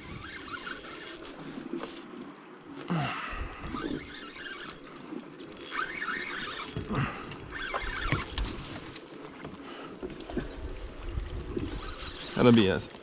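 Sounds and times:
fishing reel squealing: 0:00.0 - 0:01.6, 0:03.6 - 0:09.0, 0:11.6 - 0:13.0.

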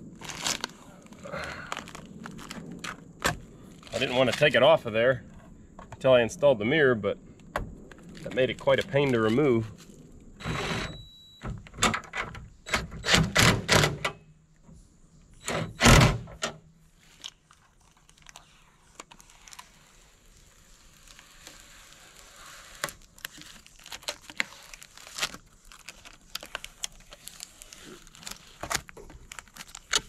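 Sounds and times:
plastic film crinkling: 0:00.0 - 0:04.8, 0:07.9 - 0:10.3, 0:16.9 - 0:30.0.

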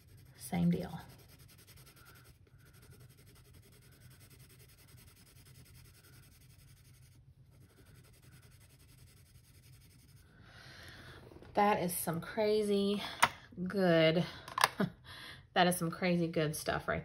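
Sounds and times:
pencil scratching on paper: 0:00.0 - 0:10.4.

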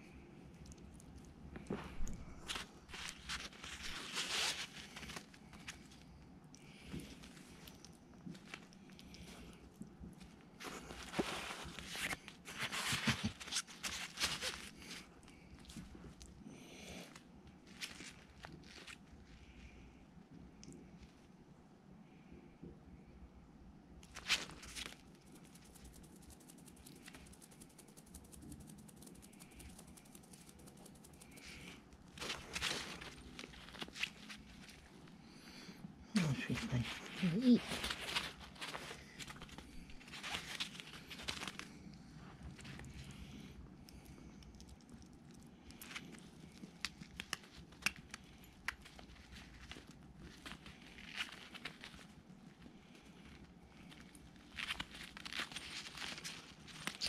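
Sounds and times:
rustling on plastic floor: 0:01.5 - 0:06.0, 0:06.7 - 0:16.2, 0:24.1 - 0:43.4, 0:45.8 - 0:57.0
hedgehogs crunching food: 0:24.0 - 0:57.0.

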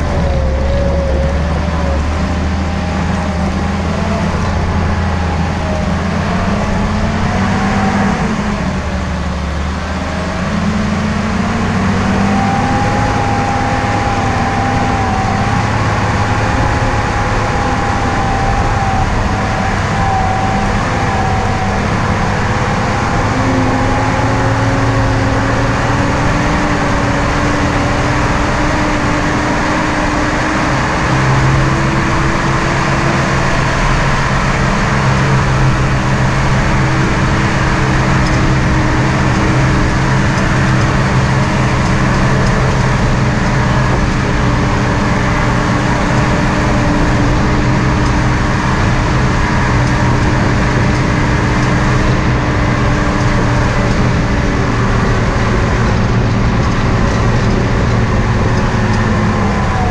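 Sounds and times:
engine running under load: 0:00.0 - 0:59.9
steady rush of noise: 0:00.0 - 0:59.9.

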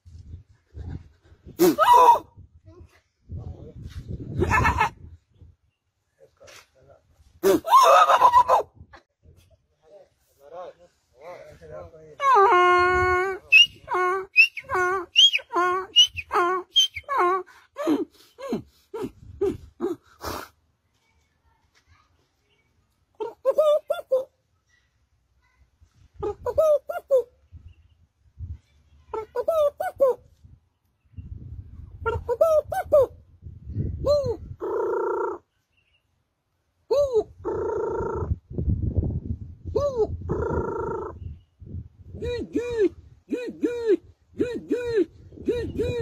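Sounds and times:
man imitating donkey braying: 0:12.2 - 0:17.5, 0:42.2 - 0:46.0
man imitating dove cooing: 0:12.2 - 0:20.1, 0:26.2 - 0:27.3, 0:32.1 - 0:33.2, 0:34.0 - 0:35.4, 0:36.9 - 0:38.4, 0:39.6 - 0:41.2, 0:42.1 - 0:46.0
breathy puff: 0:20.1 - 0:20.6.

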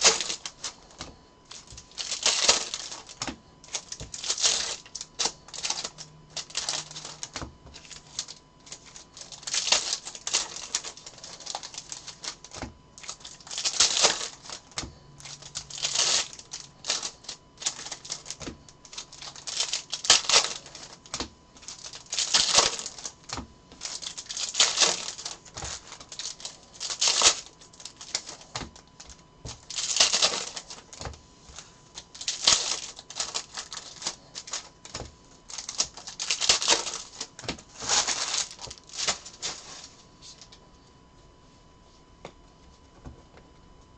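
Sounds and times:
foil wrappers crinkling and tearing: 0:00.0 - 0:40.6.

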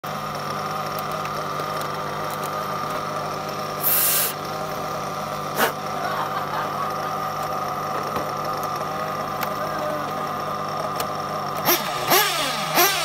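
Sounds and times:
model car engine idling: 0:00.0 - 0:13.0
short loud hiss: 0:03.8 - 0:04.3.

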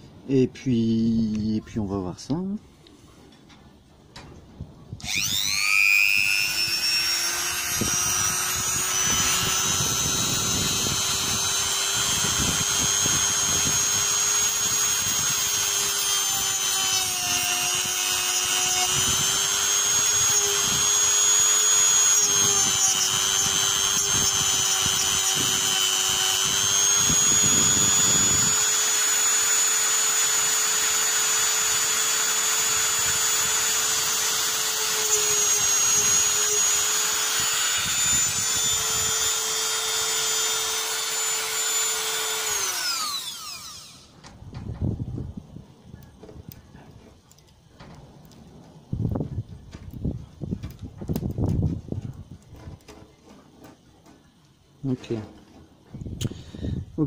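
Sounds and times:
rotary tool high whine: 0:05.0 - 0:44.3.

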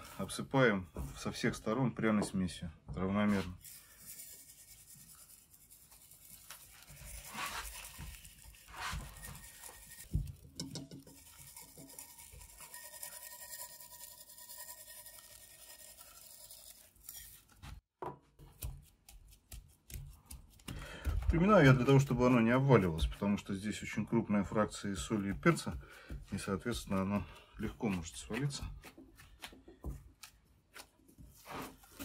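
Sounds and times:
spice granules pattering on meat: 0:04.0 - 0:17.2
hands rubbing meat: 0:04.5 - 0:10.1, 0:18.4 - 0:23.4, 0:24.8 - 0:32.0.

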